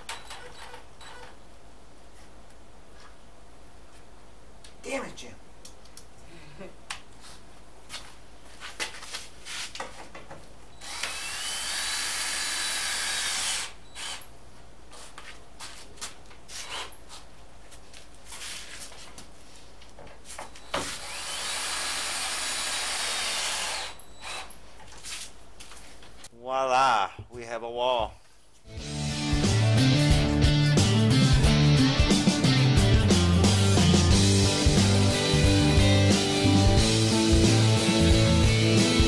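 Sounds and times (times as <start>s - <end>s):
cordless drill whine: 10.8s - 14.3s, 20.6s - 24.5s.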